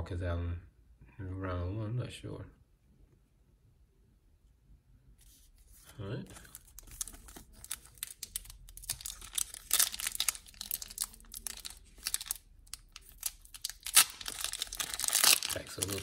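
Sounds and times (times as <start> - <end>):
foil wrapper crackling: 6.4 - 16.0.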